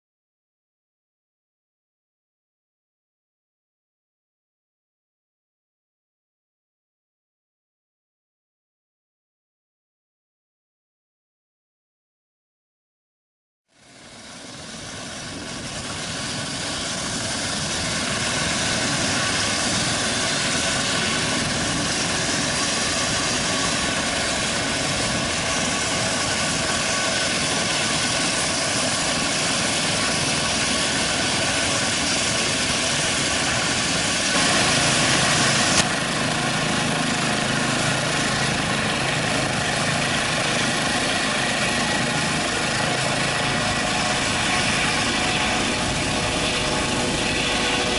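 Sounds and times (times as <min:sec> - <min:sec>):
helicopter turbine whine and rotor: 0:13.7 - 0:47.9.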